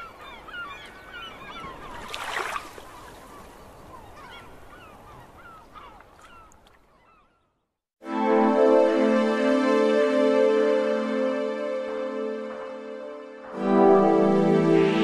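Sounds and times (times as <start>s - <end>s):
birds calling in hooked cries: 0.0s - 7.5s.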